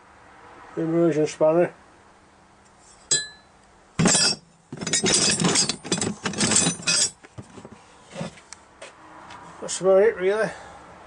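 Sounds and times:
metal tools clinking and rattling: 0:03.1 - 0:08.4.

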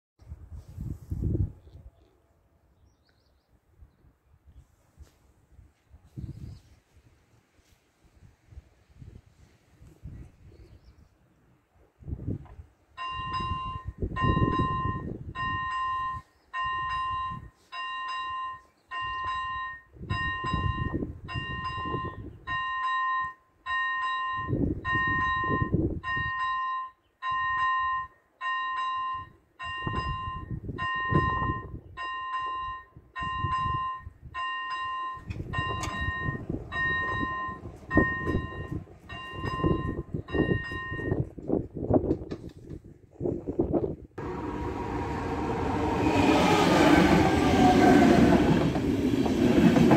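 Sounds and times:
level-crossing warning bell ringing: 0:13.0 - 0:41.3
low rumbling noise: 0:44.2 - 0:49.9.

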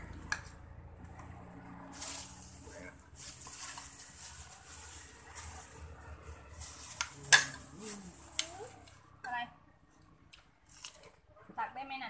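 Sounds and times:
plastic bag rustling and crinkling: 0:01.9 - 0:09.0.

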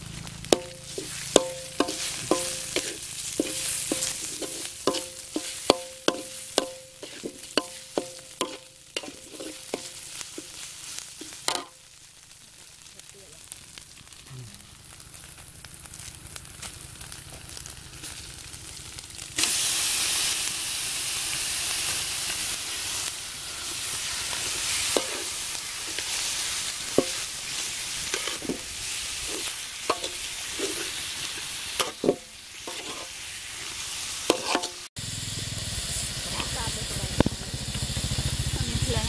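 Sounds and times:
meat sizzling in a wok: 0:00.0 - 0:39.0
metal spatula scraping wok: 0:00.5 - 0:11.7, 0:23.4 - 0:34.9.

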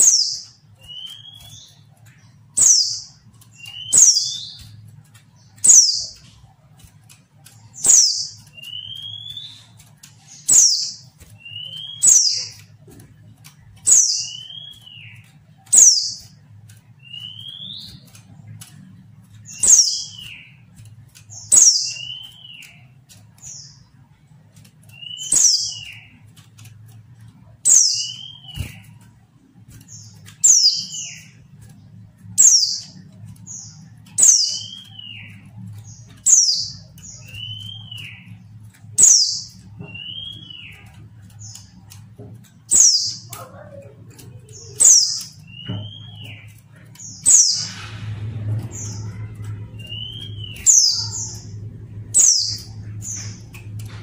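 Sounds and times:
bird chirping high downward call: 0:47.2 - 0:53.9.

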